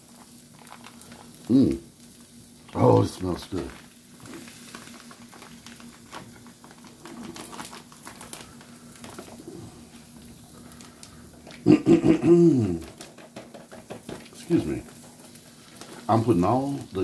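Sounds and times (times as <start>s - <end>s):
plastic bag crinkling: 0.0s - 12.0s, 12.6s - 17.0s
steady low hum: 0.0s - 13.1s.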